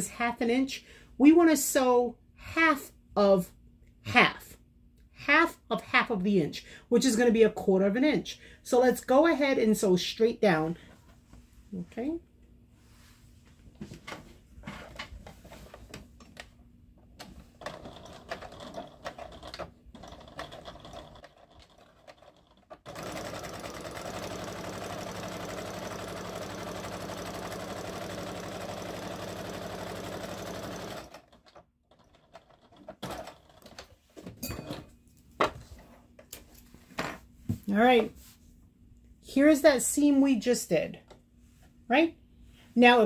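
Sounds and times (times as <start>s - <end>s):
sewing machine running: 17.6s - 33.7s.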